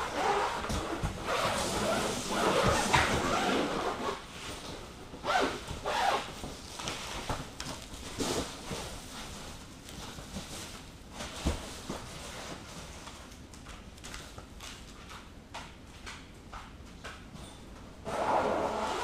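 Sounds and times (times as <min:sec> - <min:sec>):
zipper: 0:00.0 - 0:04.2, 0:05.2 - 0:06.3, 0:18.0 - 0:19.0.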